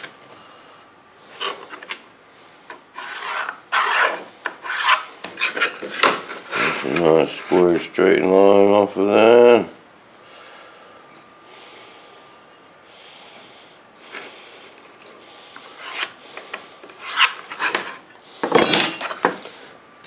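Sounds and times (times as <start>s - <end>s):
pencil scraping on wood: 3.0s - 5.8s
metal tools clattering: 18.4s - 19.5s.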